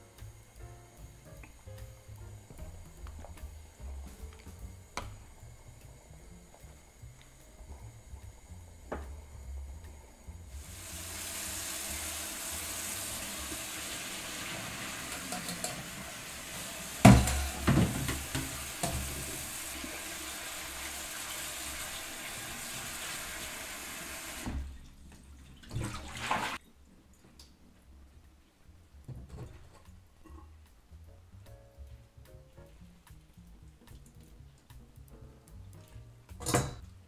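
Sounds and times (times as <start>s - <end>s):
tap water running into strainer: 10.5s - 26.6s
water splashing from pot: 10.6s - 26.6s
metal clank: 15.1s - 16.0s, 17.0s - 19.1s, 36.4s - 36.9s.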